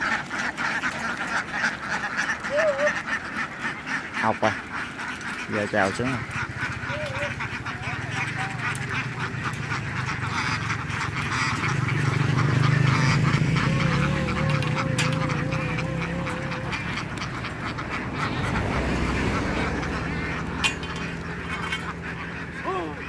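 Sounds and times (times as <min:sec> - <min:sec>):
ducks quacking: 0:00.0 - 0:23.0
low engine hum: 0:06.2 - 0:23.0.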